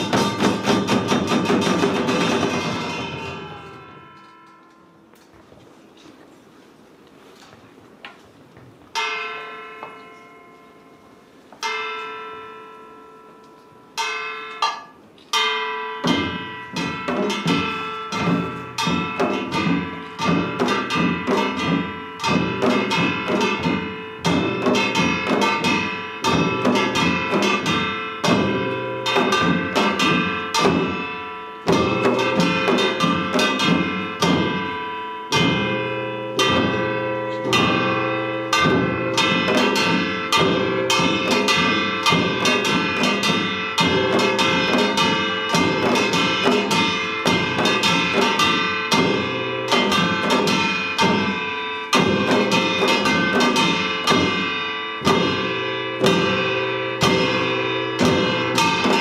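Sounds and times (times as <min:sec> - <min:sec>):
percussion ensemble drumming: 0:00.0 - 0:04.3, 0:14.6 - 0:59.0
ringing metal strokes: 0:00.0 - 0:05.2, 0:09.0 - 0:59.0.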